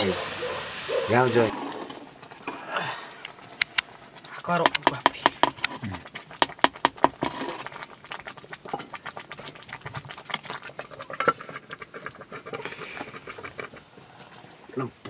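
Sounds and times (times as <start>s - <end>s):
metal ladle scraping a pot: 4.8s - 14.7s.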